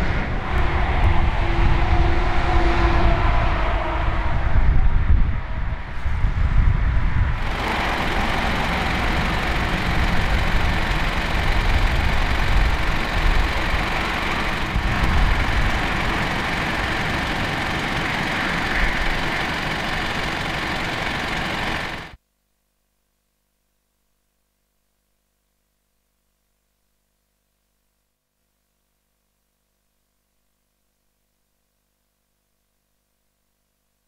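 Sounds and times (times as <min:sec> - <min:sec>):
low rumble: 0:00.0 - 0:20.4
constant rushing noise: 0:00.0 - 0:22.2
engine idling: 0:07.4 - 0:22.2.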